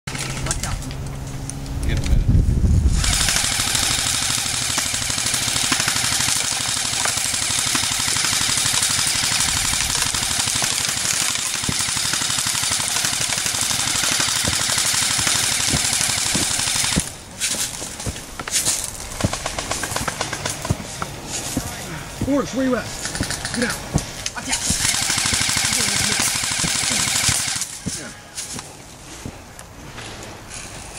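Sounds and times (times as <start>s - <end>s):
airsoft rifles firing full-auto: 3.0s - 17.2s, 18.8s - 20.8s, 23.0s - 23.8s, 24.6s - 28.0s.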